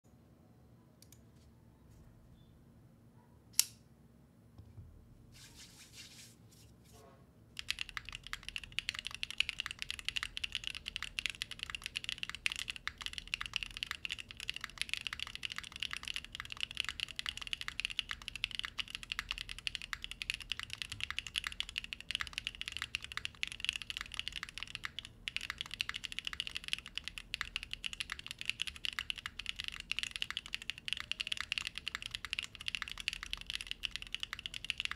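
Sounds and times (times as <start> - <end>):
sharp click: 3.5 - 3.8
typing on mechanical keyboard: 7.6 - 34.9.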